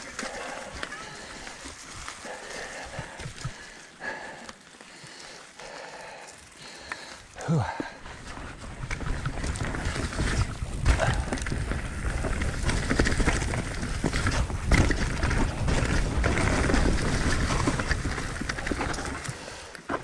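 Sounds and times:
bike rattling on bumps: 0.0 - 20.0
bike tyres on dry leaves: 0.0 - 20.0.

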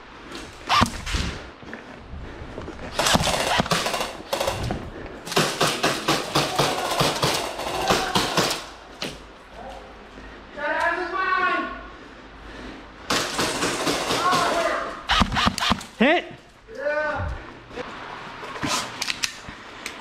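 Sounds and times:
airsoft guns firing: 3.0 - 4.7, 5.3 - 8.8, 13.1 - 16.0.

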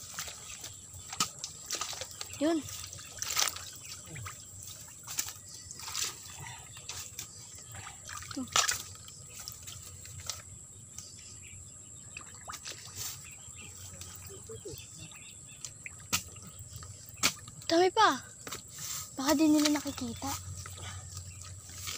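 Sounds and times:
bamboo leaves crackling and rustling: 0.0 - 11.1, 12.6 - 14.8, 17.1 - 21.9
twigs snapping: 3.1 - 3.9, 8.5 - 10.5, 21.2 - 21.9.

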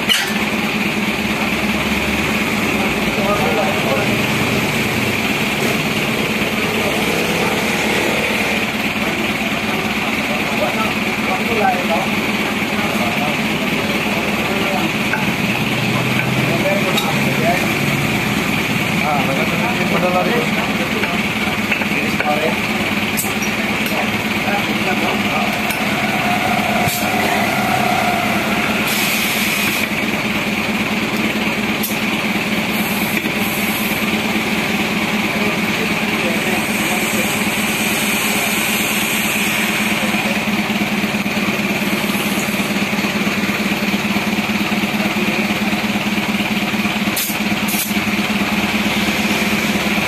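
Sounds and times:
motor humming: 3.7 - 9.2, 20.8 - 30.3
air hissing into tire: 25.6 - 30.0, 32.7 - 34.1, 36.4 - 40.3, 47.1 - 48.0.

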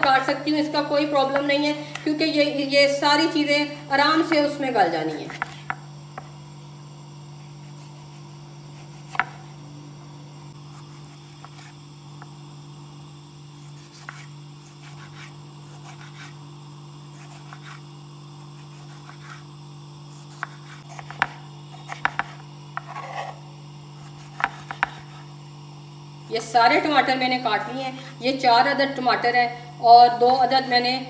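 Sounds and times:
steady low hum: 0.0 - 31.0
knife cutting on a board: 5.2 - 6.4, 7.4 - 9.6, 10.7 - 11.8, 13.6 - 16.4, 17.1 - 19.5, 20.1 - 23.4, 24.0 - 25.3.

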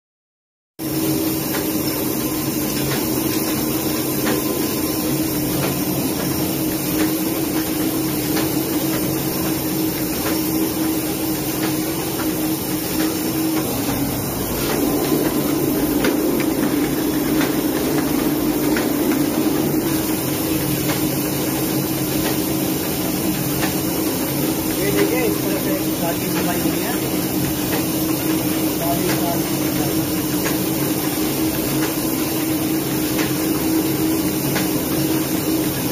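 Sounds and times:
printing press hum: 0.8 - 35.9
machine clicking: 6.9 - 22.5.

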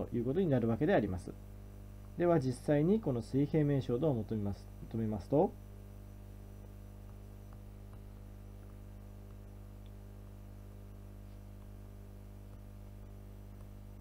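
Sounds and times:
low electrical hum: 0.0 - 14.0
faint ticks: 6.6 - 10.5, 11.2 - 13.9.

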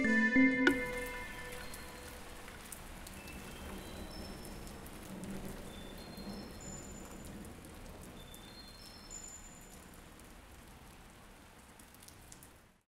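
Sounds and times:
high chiming notes: 0.0 - 2.2
rain-like patter: 0.7 - 12.9.

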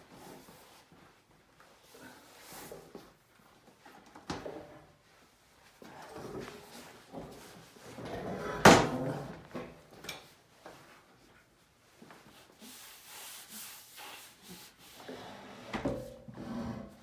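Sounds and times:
hands rubbing on desktop: 12.0 - 15.2.

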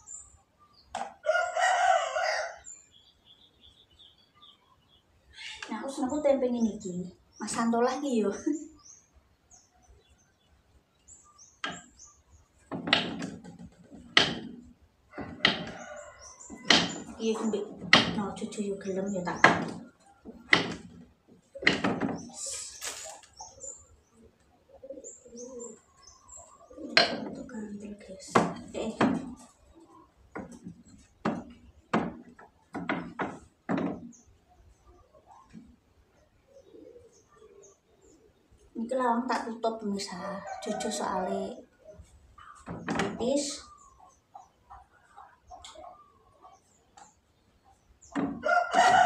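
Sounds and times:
knife knocking on wooden board: 12.7 - 14.5, 16.6 - 17.1
knife chopping on wooden board: 16.6 - 17.1.

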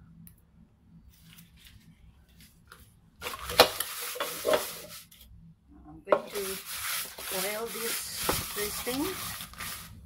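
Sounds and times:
loud scraping rustle: 6.3 - 10.0.

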